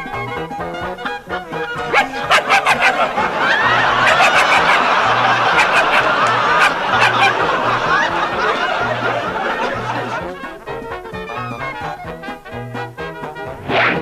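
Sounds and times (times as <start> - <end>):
brass band music: 0.0 - 14.0
audience laughing: 1.5 - 12.3.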